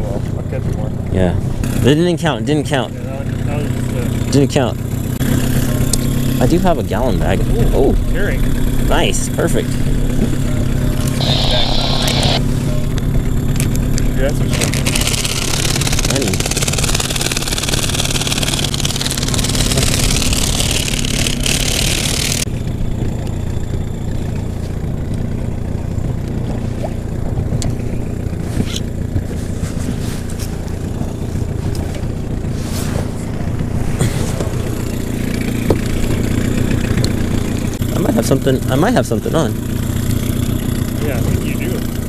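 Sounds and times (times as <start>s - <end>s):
outboard motor running: 0.0s - 42.0s
rush of hiss: 11.2s - 12.4s.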